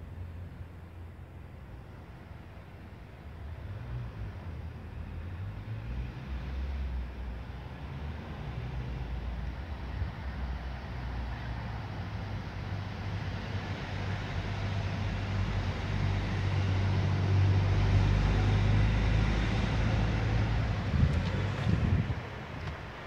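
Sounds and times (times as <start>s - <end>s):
vehicle engine humming: 8.8s - 23.0s.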